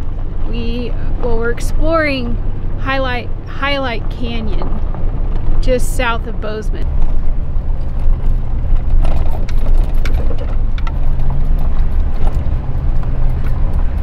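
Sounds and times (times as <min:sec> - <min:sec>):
truck tyres and engine rumble: 0:00.0 - 0:14.0
light rattles and clicks: 0:06.8 - 0:14.0.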